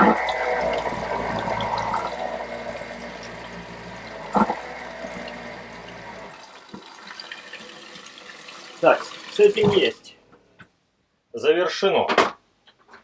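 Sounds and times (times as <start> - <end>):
water spraying into toilet bowl: 0.0 - 10.1.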